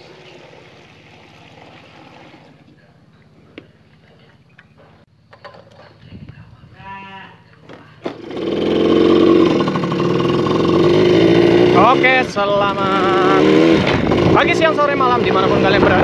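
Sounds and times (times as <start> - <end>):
faint low hum: 0.4 - 8.1
motorcycle two-stroke engine running: 8.1 - 16.0.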